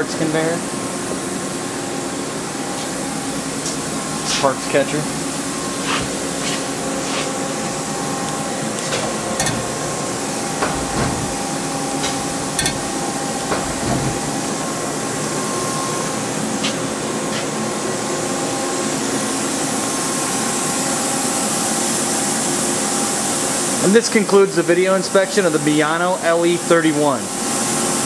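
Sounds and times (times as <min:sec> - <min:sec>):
machine hum and hiss: 0:00.0 - 0:28.0
tray clicks and knocks: 0:08.8 - 0:14.4.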